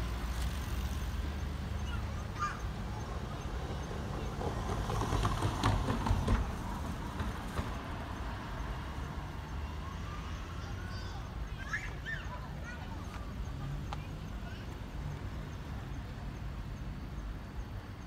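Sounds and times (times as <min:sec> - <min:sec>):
train wheels clattering over rail joints: 0:03.8 - 0:08.2.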